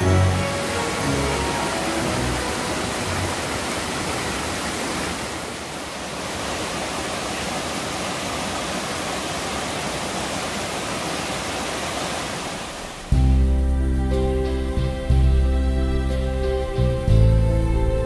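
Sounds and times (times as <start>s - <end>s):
stream rushing over rocks: 0.0s - 13.2s.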